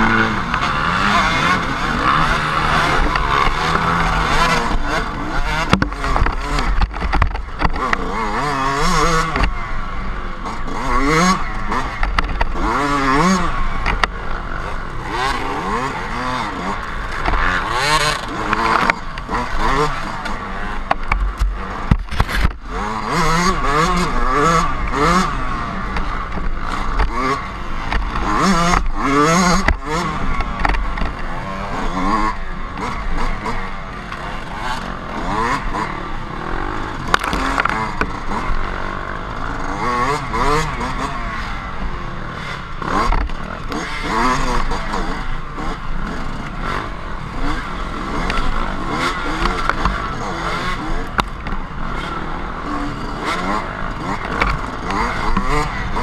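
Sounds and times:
dirt bike engine revving: 0.0 - 56.0
sharp knocks: 5.6 - 7.8.

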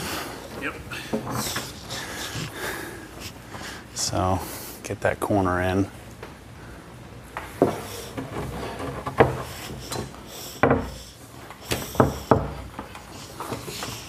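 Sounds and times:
wood scraping and rubbing: 7.6 - 14.0
wooden knocks: 11.8 - 12.9.

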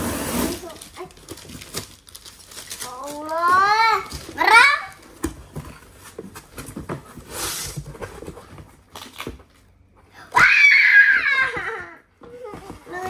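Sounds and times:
girl squealing: 10.2 - 13.0.

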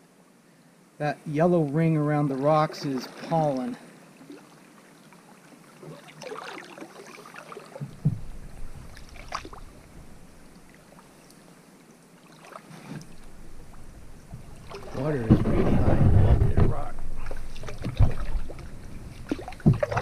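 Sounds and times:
water dripping and swirling: 1.6 - 20.0
paddle strokes in water: 2.1 - 20.0
sharp knocks: 7.8 - 8.5, 14.3 - 18.6, 19.2 - 20.0.

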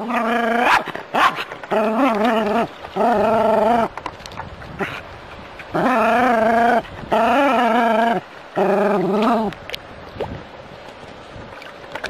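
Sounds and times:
dog whining: 0.0 - 3.9, 5.7 - 9.5.

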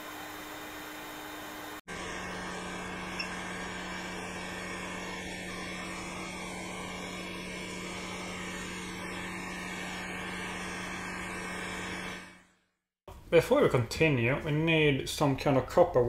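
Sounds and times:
hot air station blowing: 0.0 - 12.5.

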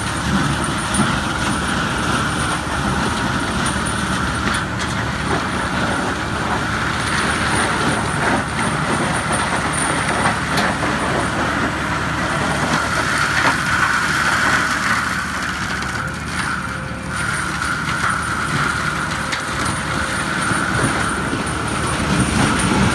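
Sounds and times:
tractor engine drone: 0.0 - 22.9
mulcher rotor high hum: 15.3 - 22.9.

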